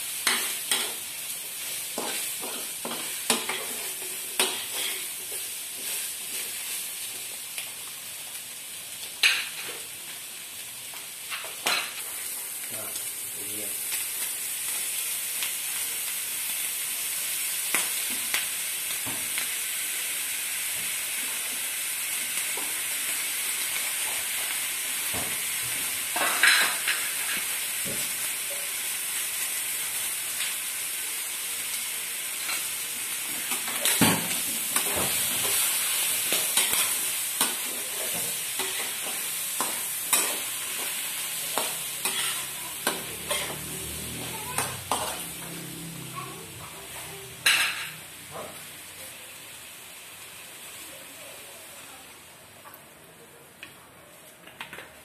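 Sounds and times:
meat sizzling in a wok: 0.0s - 53.5s
spatula scraping a pan: 41.6s - 45.5s.

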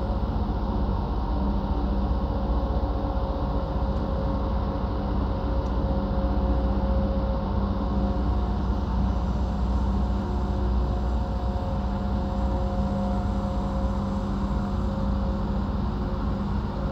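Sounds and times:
ship engine drone: 0.0s - 16.9s.

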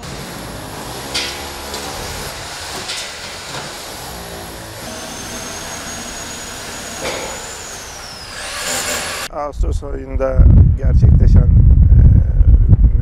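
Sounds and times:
steady mechanical rumble: 0.0s - 9.3s.

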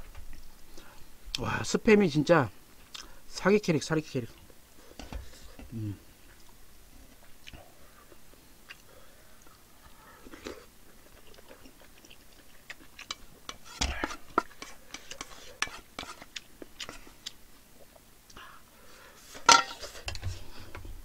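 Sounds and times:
chewing and mouth sounds: 7.2s - 15.2s, 16.2s - 18.4s.

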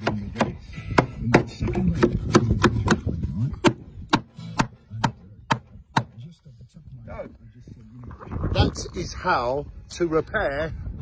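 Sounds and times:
hammer tapping nails into wood: 0.0s - 6.2s.

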